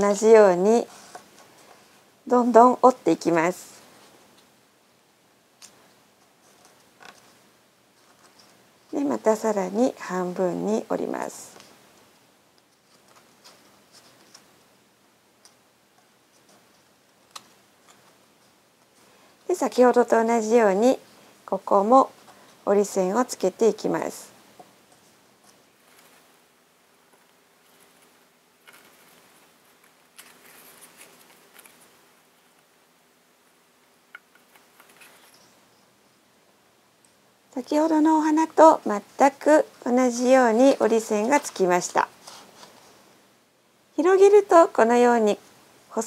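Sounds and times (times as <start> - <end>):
paper being folded and creased: 27.6 - 32.0.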